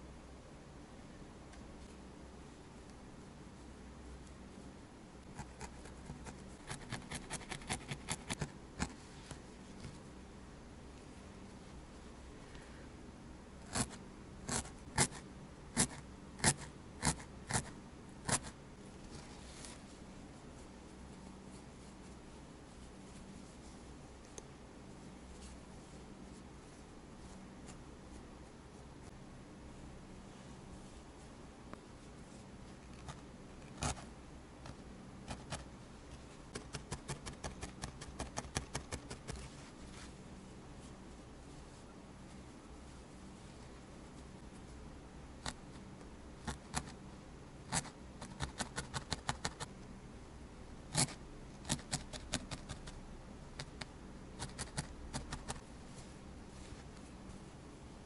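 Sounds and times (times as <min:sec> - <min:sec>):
felting needle punching wool: 0:05.3 - 0:09.0, 0:36.5 - 0:39.5, 0:47.7 - 0:49.7, 0:50.9 - 0:55.7.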